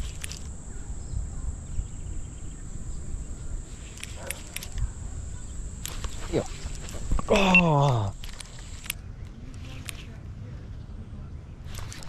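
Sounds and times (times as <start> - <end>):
wind rumble on microphone: 0.0 - 7.3
faint clicks: 3.8 - 10.1.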